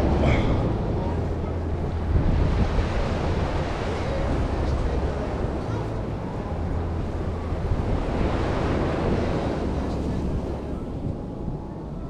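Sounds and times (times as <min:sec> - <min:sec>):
ocean surf washing onto beach: 0:00.0 - 0:12.0
wind buffeting microphone: 0:00.0 - 0:12.0.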